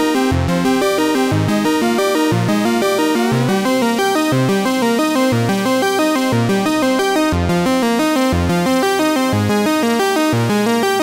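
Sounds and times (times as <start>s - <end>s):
steady bass beat: 0.0s - 11.0s
upbeat synthesizer tune: 0.0s - 11.0s.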